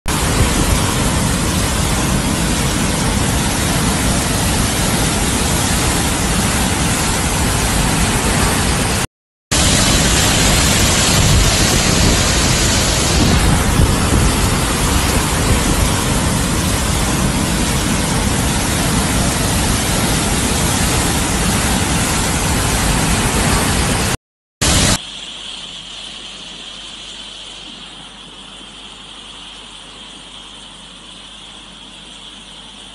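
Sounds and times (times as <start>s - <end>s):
floodwater rushing: 0.1s - 25.0s.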